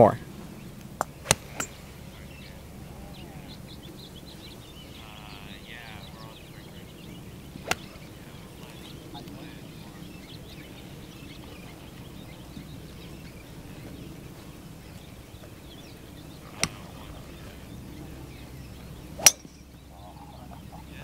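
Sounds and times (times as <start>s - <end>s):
golf club striking ball: 0.8s - 1.9s, 7.5s - 8.1s, 16.5s - 16.9s, 18.9s - 19.8s.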